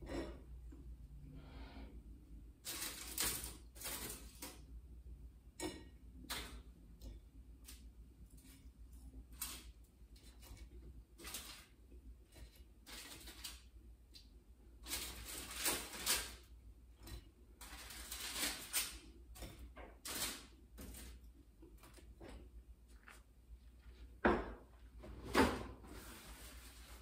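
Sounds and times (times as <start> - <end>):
rustling handling noises: 25.8 - 27.0.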